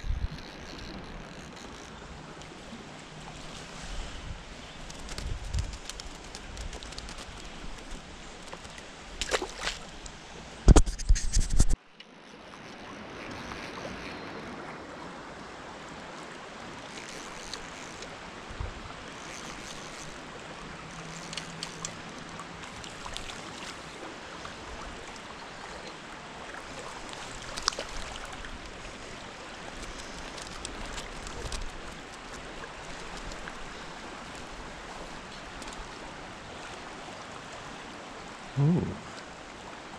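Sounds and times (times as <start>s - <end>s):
knocks and rubbing on microphone: 10.6s - 11.8s
stream water rushing: 12.1s - 39.9s.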